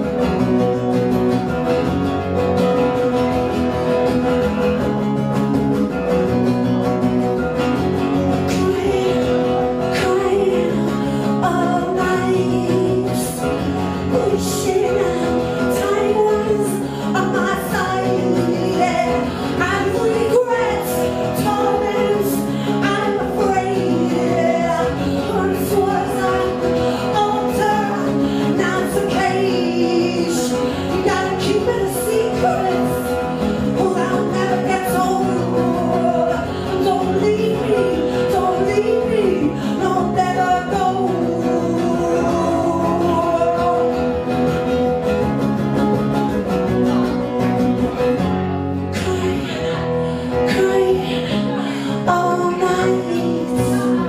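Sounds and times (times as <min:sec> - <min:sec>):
strummed guitar: 0:00.0 - 0:54.0
woman singing: 0:07.3 - 0:44.7, 0:48.8 - 0:54.0.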